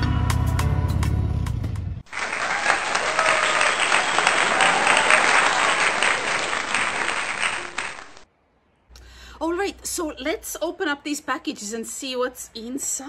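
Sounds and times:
crowd applause: 0:02.1 - 0:08.2.

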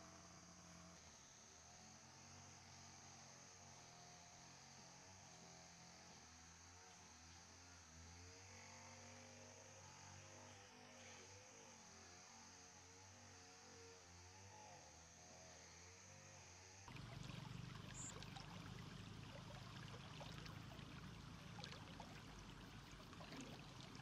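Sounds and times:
faint steady hum: 0:16.4 - 0:24.0
stream trickling and splashing: 0:16.9 - 0:24.0.

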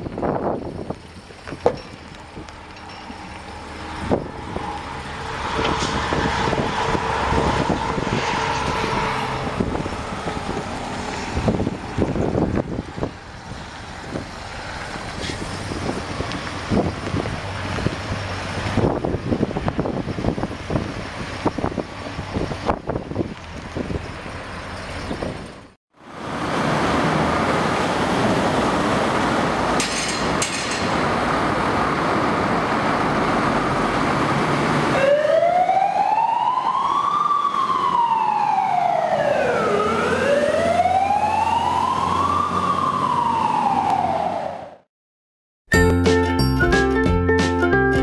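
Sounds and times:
fire truck engines and road noise: 0:00.0 - 0:44.9
wailing siren: 0:34.8 - 0:44.8.

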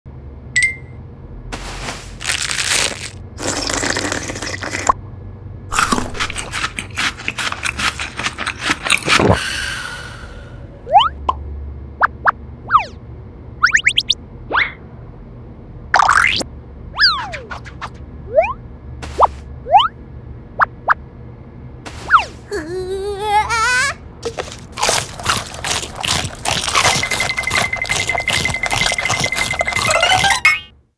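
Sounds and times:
rustling noise: 0:01.5 - 0:03.2, 0:21.9 - 0:22.5
crunching bites: 0:01.6 - 0:04.9, 0:05.7 - 0:09.4, 0:24.2 - 0:30.4.

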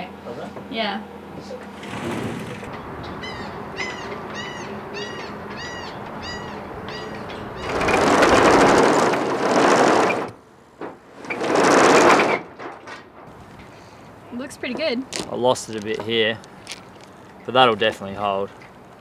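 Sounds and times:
high rising and falling call: 0:02.6 - 0:08.0.

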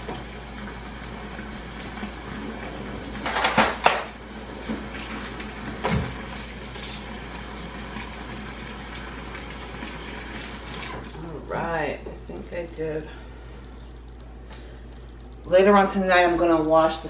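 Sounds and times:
running water: 0:00.0 - 0:12.8.

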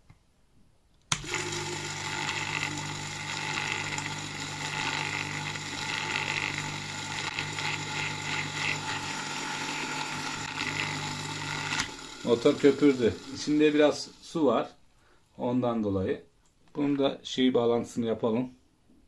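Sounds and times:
pump motor humming and whirring: 0:01.1 - 0:14.1.

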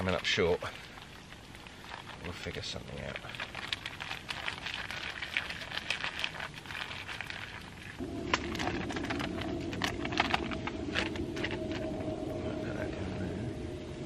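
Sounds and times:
campfire crackling: 0:00.0 - 0:14.0
steady low hum: 0:05.9 - 0:14.0.

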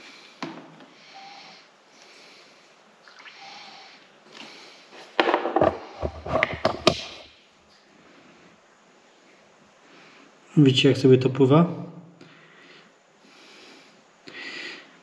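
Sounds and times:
faint hiss: 0:00.0 - 0:05.2, 0:06.8 - 0:15.0
knocks and rubbing: 0:05.2 - 0:07.2.

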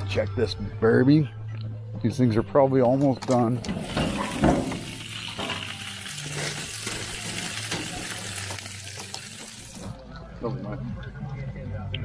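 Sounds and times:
meat sizzling on a grill: 0:03.8 - 0:09.9.

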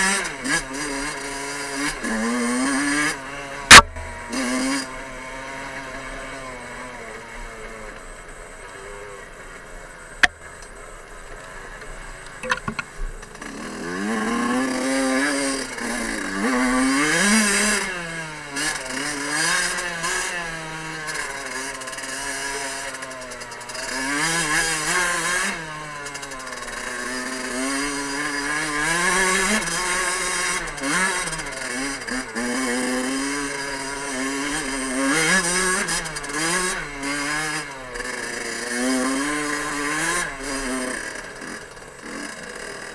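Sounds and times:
two-stroke engine revving: 0:00.0 - 0:10.8, 0:11.4 - 0:42.9
sharp knocks: 0:03.7 - 0:04.8.

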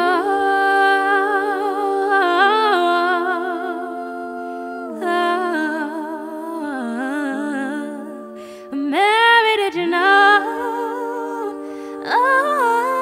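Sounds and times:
women singing a cappella harmony: 0:00.0 - 0:13.0.

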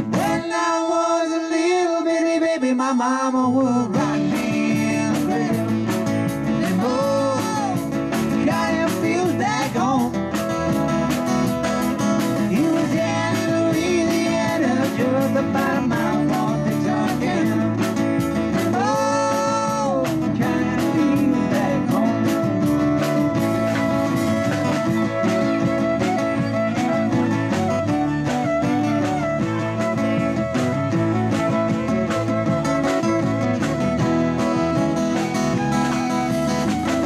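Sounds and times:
drum kit steady beat: 0:00.0 - 0:00.5, 0:04.0 - 0:37.0
strummed acoustic guitar: 0:00.0 - 0:00.6, 0:03.8 - 0:37.0
fiddle melody with slides: 0:22.0 - 0:37.0.

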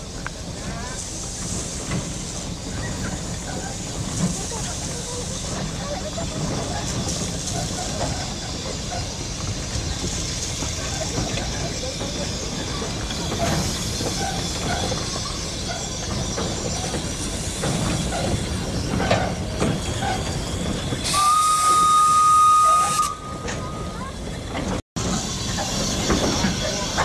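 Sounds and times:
steam hissing: 0:00.0 - 0:24.3, 0:25.0 - 0:27.0
steam whistle: 0:21.1 - 0:23.9.

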